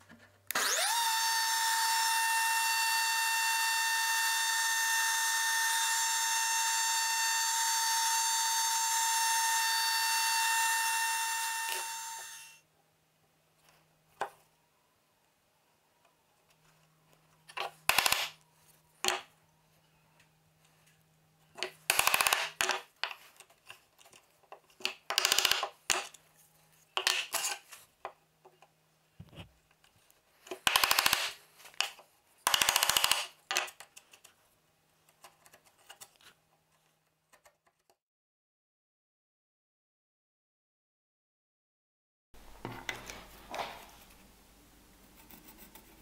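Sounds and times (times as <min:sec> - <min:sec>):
chisel scraping through hardwood: 0:27.0 - 0:27.8.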